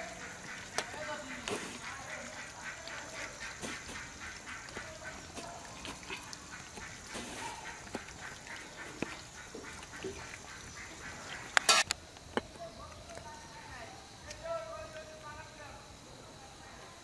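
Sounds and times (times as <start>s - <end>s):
ducks quacking: 0.0s - 11.9s.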